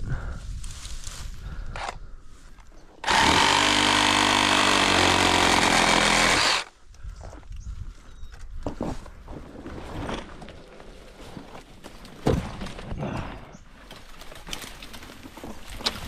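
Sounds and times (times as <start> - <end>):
power saw cutting branch: 3.0 - 6.7.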